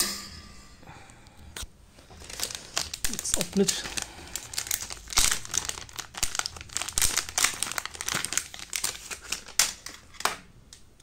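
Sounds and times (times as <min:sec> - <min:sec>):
plastic packaging crinkling: 0:01.9 - 0:10.4.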